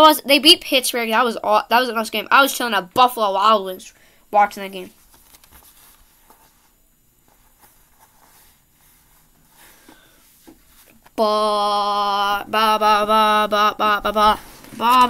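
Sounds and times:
faint rustling: 4.9s - 11.2s.

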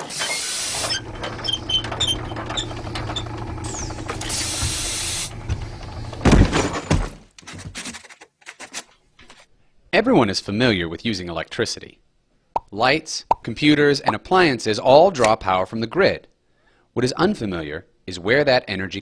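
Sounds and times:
hissing: 0.0s - 6.1s
low mechanical hum: 0.1s - 7.2s
rattling: 0.1s - 8.9s
heavy thuds: 2.2s - 7.3s.

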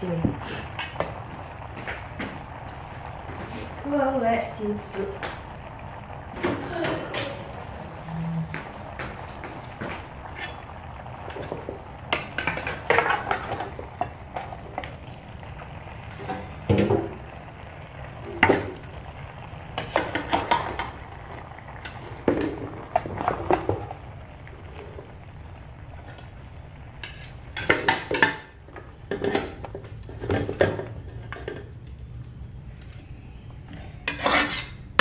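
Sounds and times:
low hum: 0.0s - 34.1s
metal utensils scraping a wok: 10.2s - 14.8s, 27.0s - 28.5s, 33.9s - 35.0s.

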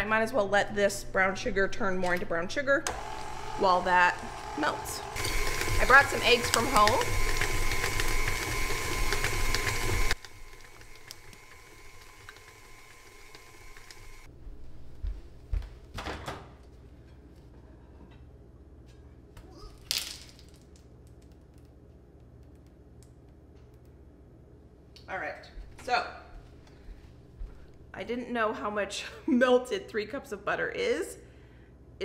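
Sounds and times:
electric mixer running: 2.9s - 14.3s.

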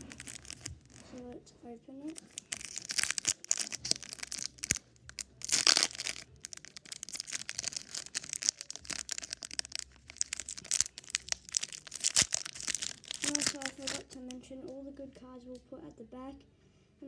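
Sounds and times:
foil wrapper crinkling: 0.0s - 1.2s, 2.1s - 14.4s
foil wrapper tearing: 0.0s - 1.2s, 2.1s - 14.3s.

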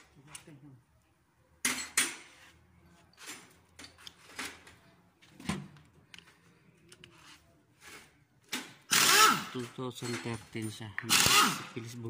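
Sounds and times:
tools clinking and knocking: 1.6s - 2.4s, 3.1s - 4.8s, 9.5s - 11.4s.

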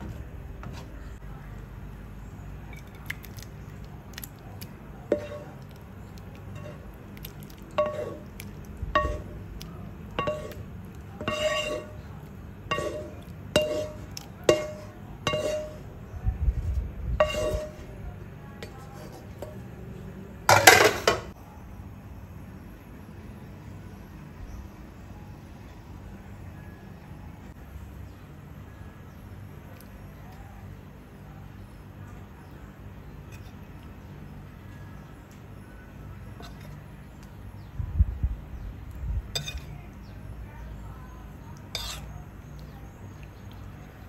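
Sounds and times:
utensil clinking on ceramic bowl: 5.1s - 5.6s, 6.5s - 9.5s, 10.2s - 12.0s, 12.7s - 15.8s, 39.4s - 39.7s
scraping clatter: 10.2s - 12.1s, 12.7s - 15.9s, 17.2s - 17.9s.

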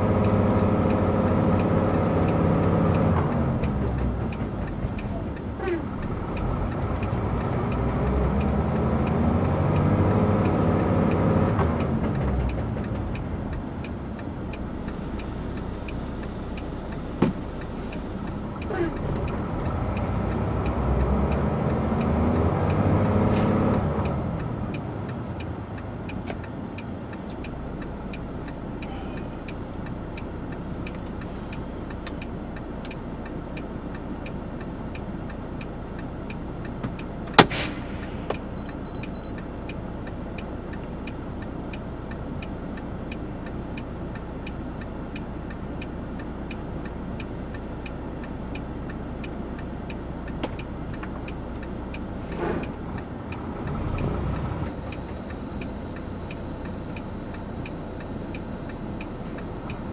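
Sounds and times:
passing vehicle engine: 0.0s - 29.4s, 49.5s - 59.9s
truck engine hum: 0.0s - 59.9s
fast regular relay ticking: 38.4s - 59.9s.

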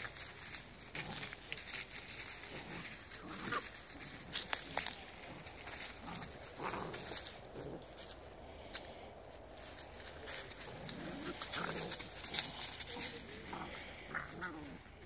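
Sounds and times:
leaves rustling and crunching: 0.0s - 15.0s
puppies grunting and growling: 2.3s - 8.2s, 10.3s - 15.0s.

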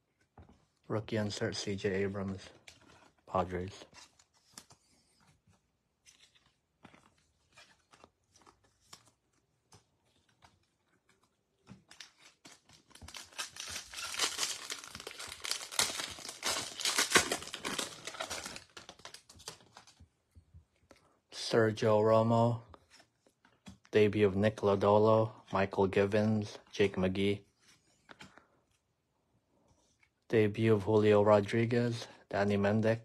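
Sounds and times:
wrapper tearing and crinkling: 11.9s - 20.0s.

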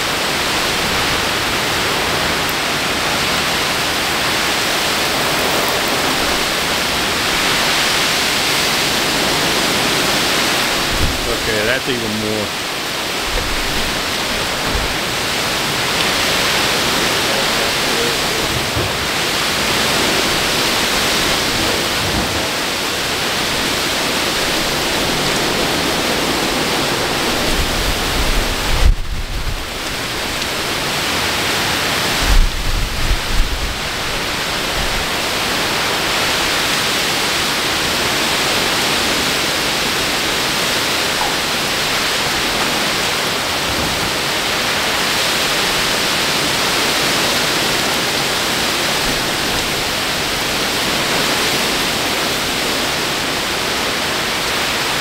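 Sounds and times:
heavy rain hissing: 0.0s - 55.0s
strong wind gusts: 0.0s - 55.0s
low thunder rumble: 9.0s - 11.5s, 13.2s - 30.4s.

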